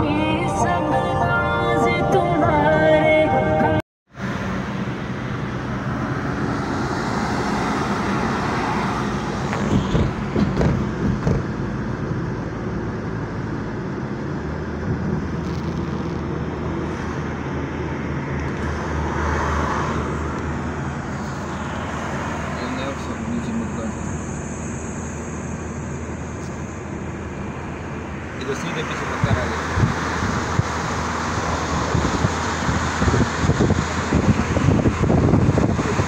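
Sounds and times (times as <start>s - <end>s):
engine hum: 0.0s - 36.0s
tyre and wind noise: 9.1s - 11.8s, 29.3s - 36.0s.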